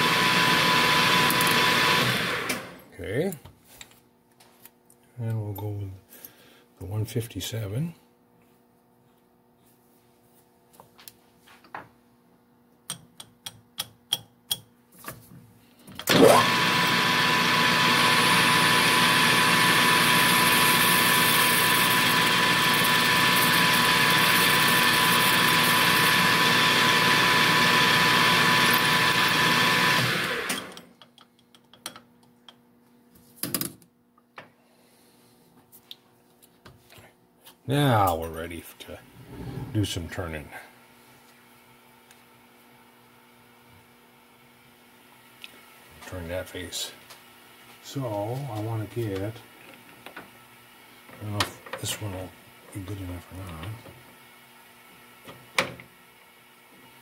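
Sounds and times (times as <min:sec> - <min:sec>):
metal lathe whining: 0:00.1 - 0:02.8, 0:16.1 - 0:30.8.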